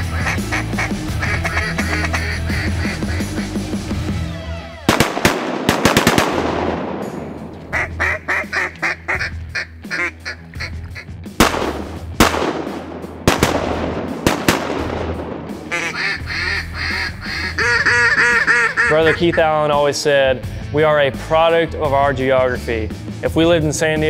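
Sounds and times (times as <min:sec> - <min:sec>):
duck quacking: 0:00.0 - 0:03.7, 0:07.7 - 0:11.1, 0:15.7 - 0:19.6
music with low drone: 0:00.0 - 0:05.0, 0:06.4 - 0:24.0.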